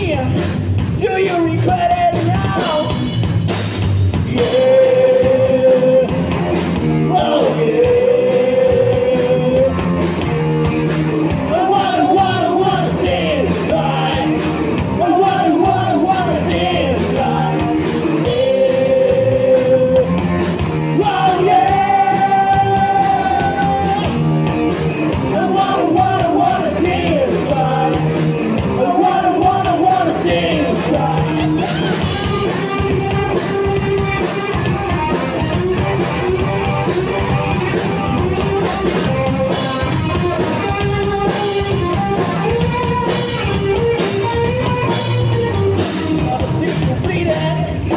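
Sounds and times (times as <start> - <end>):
bass guitar: 0.0 - 47.9
drums and cymbals: 0.0 - 47.9
electric guitar: 0.0 - 47.9
person singing: 4.2 - 9.8, 11.4 - 20.2, 20.8 - 24.2, 25.1 - 33.1, 43.8 - 47.9.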